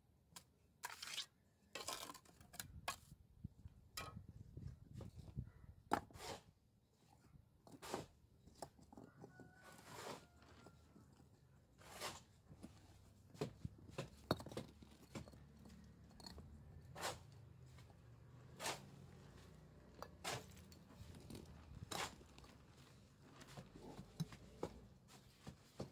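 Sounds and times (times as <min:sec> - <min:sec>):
footsteps crunching on stone: 0:20.4 - 0:25.9.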